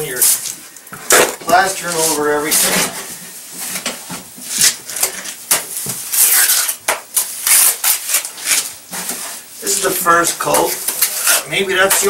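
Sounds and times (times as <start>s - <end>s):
trowel scraping plaster on wall: 6.1s - 9.2s, 10.9s - 12.0s.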